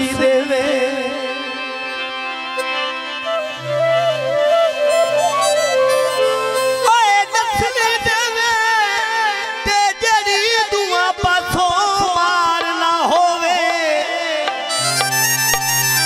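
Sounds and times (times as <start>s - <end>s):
man singing amplified folk vocal: 0.0s - 2.4s, 6.7s - 15.0s.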